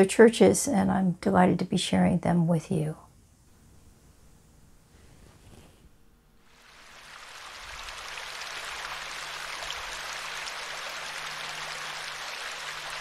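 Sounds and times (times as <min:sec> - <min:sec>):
stream splashing over cascade: 0:06.5 - 0:13.0.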